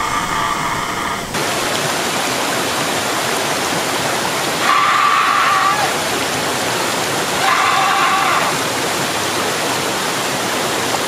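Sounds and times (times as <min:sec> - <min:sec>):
waterfall rushing: 0:00.0 - 0:11.0
person screaming: 0:04.6 - 0:06.0, 0:07.4 - 0:08.6.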